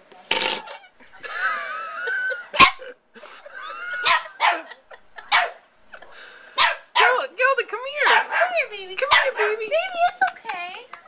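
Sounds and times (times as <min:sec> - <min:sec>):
small dog barking: 0:04.0 - 0:05.6, 0:06.6 - 0:07.2, 0:08.0 - 0:09.6.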